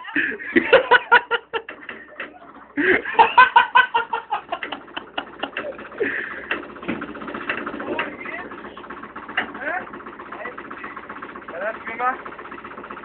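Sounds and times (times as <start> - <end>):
person cackling laughter: 0.0 - 6.5.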